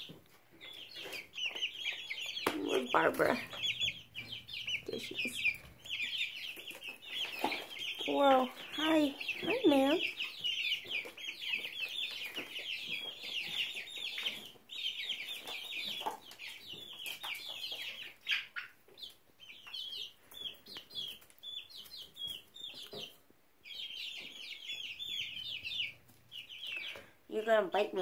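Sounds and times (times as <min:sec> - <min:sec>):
young chickens peeping: 0:00.0 - 0:28.0.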